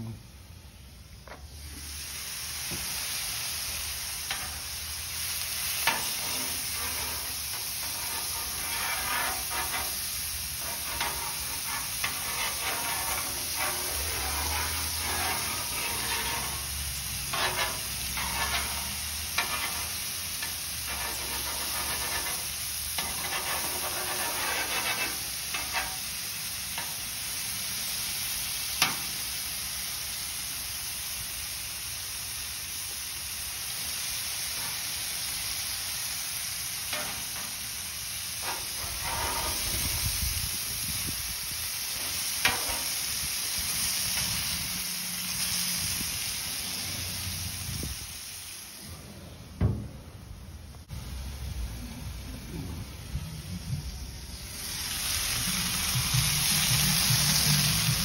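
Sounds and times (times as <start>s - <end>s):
meat sizzling on a griddle: 0.7s - 49.8s, 50.8s - 58.0s
metal tongs scraping griddle: 3.8s - 27.2s, 28.8s - 29.2s, 34.5s - 35.0s, 36.8s - 46.0s.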